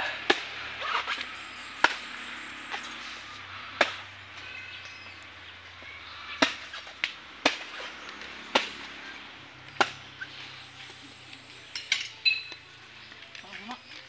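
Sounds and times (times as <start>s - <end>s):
knife chopping coconuts: 0.2s - 1.2s, 3.7s - 4.0s, 6.4s - 8.9s, 9.7s - 10.2s.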